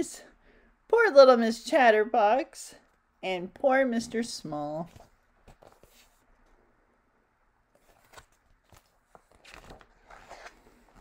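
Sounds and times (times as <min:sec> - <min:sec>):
page turning rustle: 0:04.9 - 0:06.3, 0:07.7 - 0:11.0.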